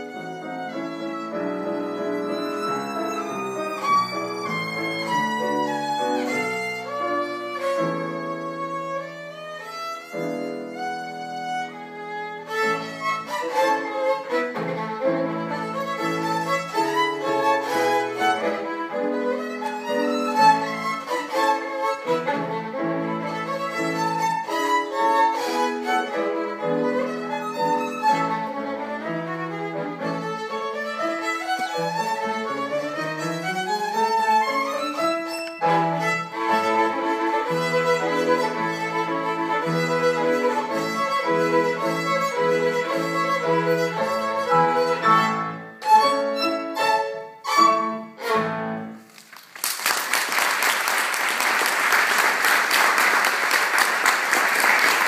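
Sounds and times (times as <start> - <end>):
violin and piano playing: 0.0 - 49.1
audience applause: 49.1 - 55.0.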